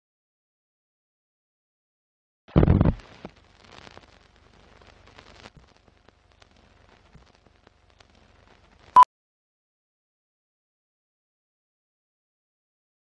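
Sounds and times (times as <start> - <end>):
film crackle with pops and clicks: 2.5 - 9.1.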